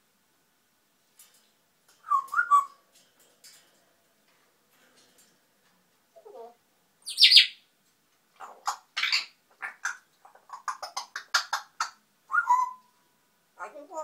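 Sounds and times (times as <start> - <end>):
parrot calling and chirping: 2.0 - 2.8, 6.2 - 7.7, 8.4 - 13.0.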